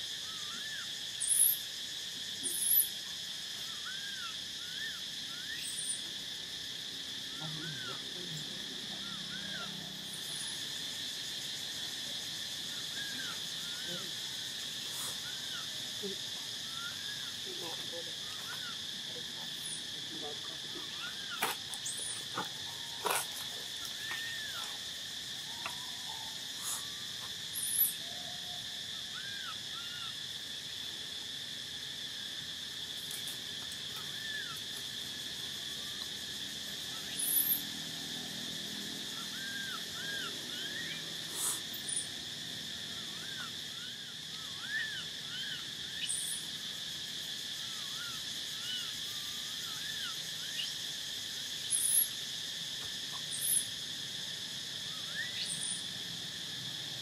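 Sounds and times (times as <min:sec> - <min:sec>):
insect chorus drone: 0:00.0 - 0:57.0.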